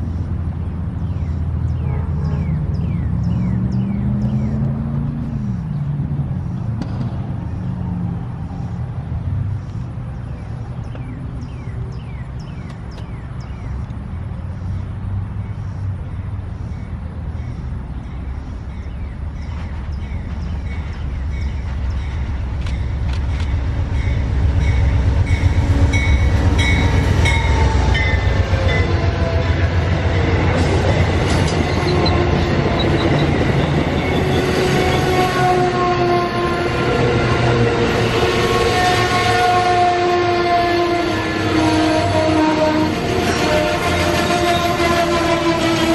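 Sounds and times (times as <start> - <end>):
train rumble passing: 0.0 - 45.9.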